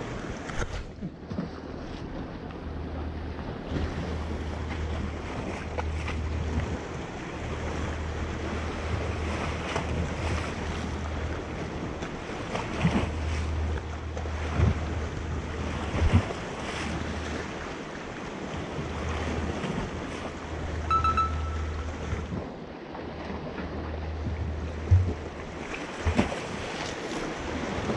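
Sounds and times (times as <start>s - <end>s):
sea waves washing against rocks: 0.0s - 20.8s, 22.4s - 27.9s
short high tone: 20.9s - 22.2s.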